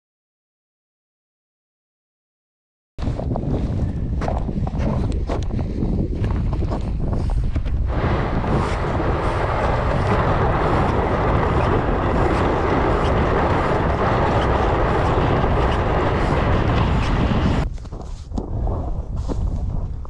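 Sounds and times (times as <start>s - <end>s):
wind rumble on microphone: 3.0s - 20.0s
sled scraping over snowy ice: 6.5s - 18.3s.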